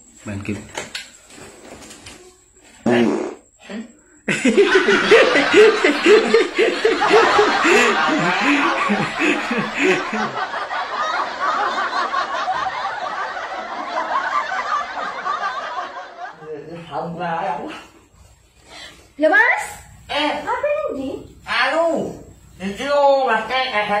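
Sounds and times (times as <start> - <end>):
person laughing: 4.3 - 10.7
soft giggling: 4.3 - 14.8.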